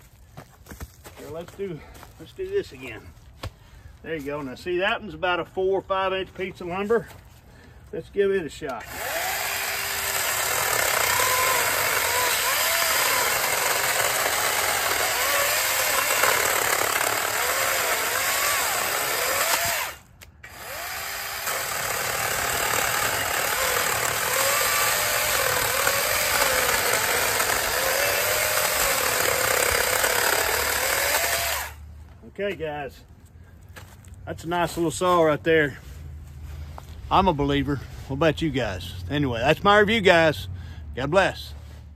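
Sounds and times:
electric chainsaw cutting wood: 8.8s - 31.8s.

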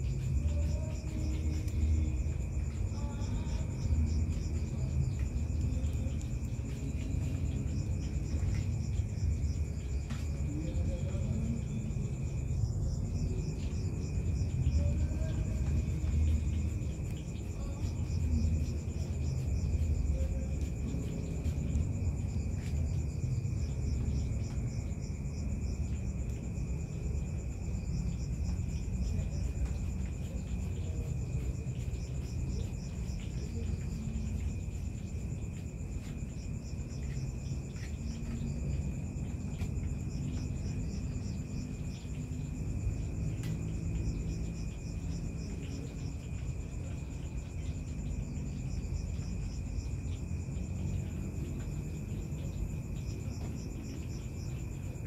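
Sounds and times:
crickets trilling: 0.0s - 55.0s
rapid insect chirps: 0.0s - 55.0s.

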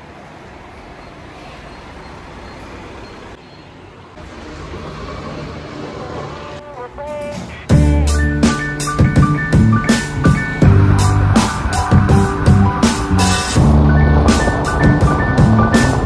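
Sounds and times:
road traffic and street noise: 0.0s - 16.0s
music with drums: 7.1s - 16.0s.

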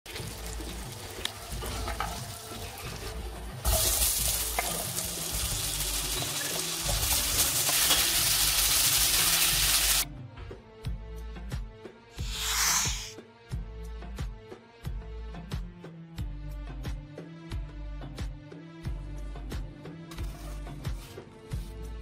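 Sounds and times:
butter sizzling in frying pan: 0.1s - 10.0s.

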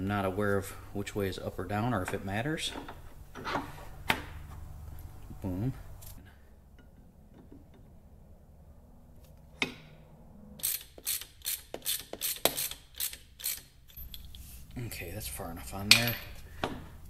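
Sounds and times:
ratchet wrench clicking: 10.6s - 14.2s.

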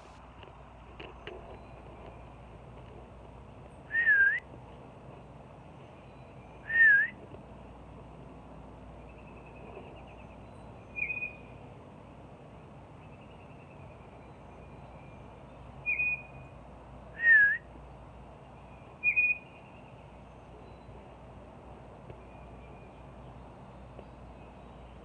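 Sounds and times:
short high whistles: 3.9s - 4.4s, 6.7s - 7.2s
faint bird twittering: 9.0s - 11.6s, 13.0s - 16.5s, 18.6s - 21.0s.

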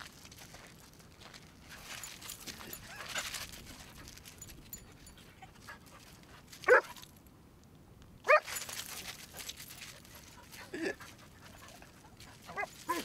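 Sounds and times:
dog barking high-pitched: 6.7s - 6.9s, 8.3s - 8.5s.

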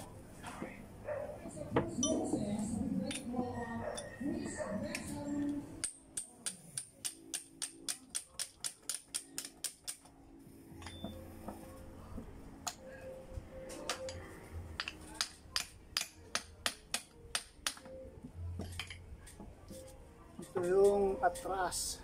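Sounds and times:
hammer tapping on metal: 4.9s - 10.1s, 13.8s - 14.2s, 14.8s - 18.0s.

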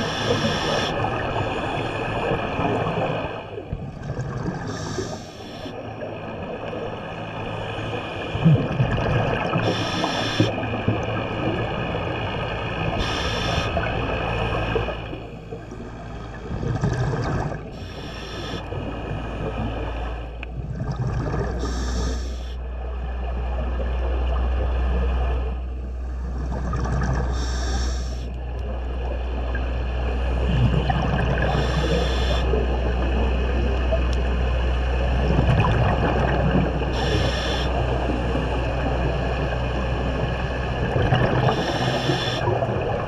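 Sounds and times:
steady mechanical hum: 0.0s - 43.0s
regulator hiss on inhale: 4.7s - 5.7s, 9.6s - 10.5s, 13.0s - 13.8s, 17.8s - 18.7s, 21.6s - 22.6s, 27.3s - 28.3s, 31.5s - 32.5s, 37.0s - 37.7s, 41.5s - 42.5s
low rumble: 10.6s - 31.7s, 32.4s - 41.6s
bubbling underwater: 15.6s - 17.7s, 20.5s - 21.7s, 35.1s - 37.1s, 40.8s - 41.8s.

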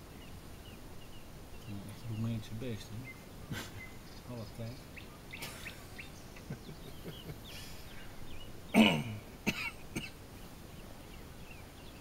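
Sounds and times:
faint bird chirps: 0.0s - 12.0s
person coughing loudly: 8.7s - 10.2s.

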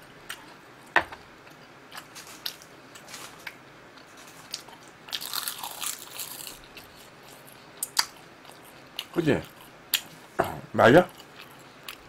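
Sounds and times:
crisp crunching and chewing: 1.5s - 9.6s.

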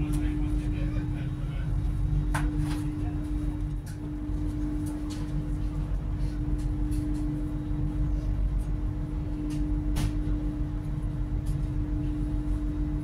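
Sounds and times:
constant hum: 0.0s - 13.0s
train interior rumble: 0.0s - 13.0s.

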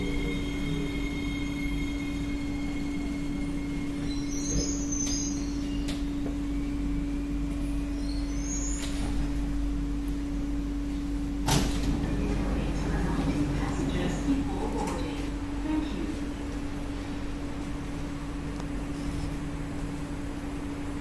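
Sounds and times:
train motor whine: 0.0s - 15.2s
train electric running hum: 0.0s - 21.0s.

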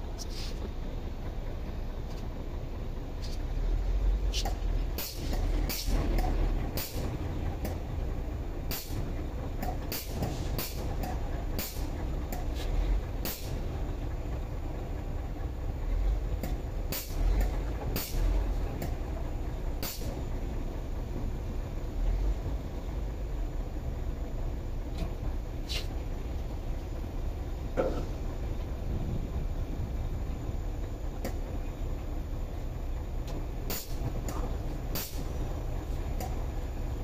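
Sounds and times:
steady low rumble: 0.0s - 37.0s
grease gun hissing and clicking: 9.6s - 13.6s, 16.4s - 19.0s, 19.8s - 20.2s, 33.3s - 36.4s.

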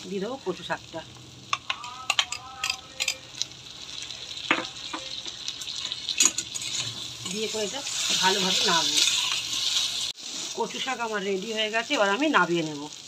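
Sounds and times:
frying sizzle: 0.0s - 13.0s
metal spatula scraping pan: 4.8s - 10.9s.

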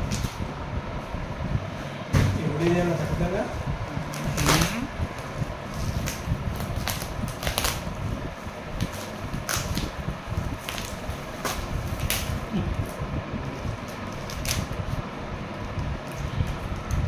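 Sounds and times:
bubble wrap crinkling: 4.1s - 17.0s.

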